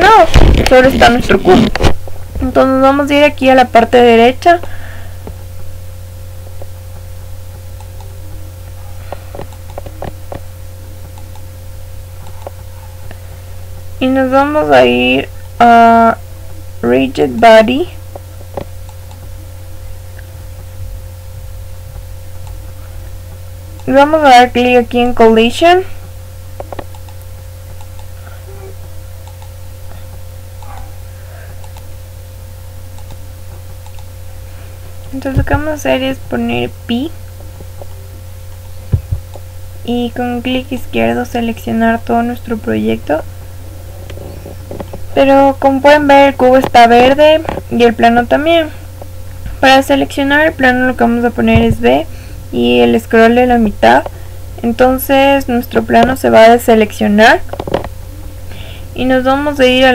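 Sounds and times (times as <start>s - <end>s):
low electrical hum: 0.0s - 59.9s
computer mouse clicks: 11.2s - 11.5s, 26.6s - 28.1s, 29.2s - 29.5s, 31.6s - 31.9s, 33.0s - 33.2s, 33.8s - 34.1s.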